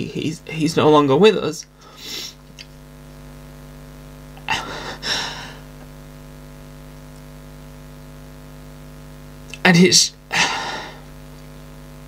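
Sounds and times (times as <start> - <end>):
low electrical hum: 0.0 - 12.0
person sobbing: 4.4 - 5.8, 10.3 - 11.1.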